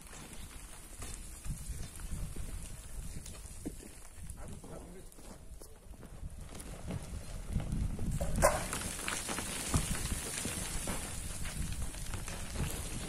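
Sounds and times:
sand and gravel sliding: 0.0s - 13.0s
stones clattering: 8.2s - 13.0s.

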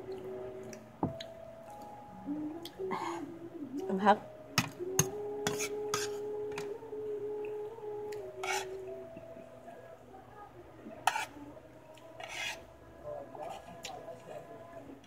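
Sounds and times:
metal spoon scraping a plate: 5.4s - 6.6s, 8.4s - 8.8s, 11.0s - 11.3s, 12.2s - 12.6s.

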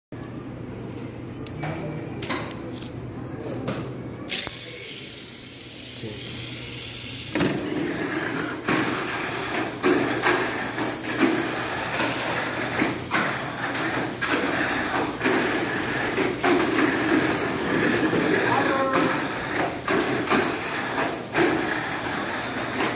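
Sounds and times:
small electric motor whirring: 4.3s - 7.6s
toy car clacking against track walls: 4.3s - 22.9s.

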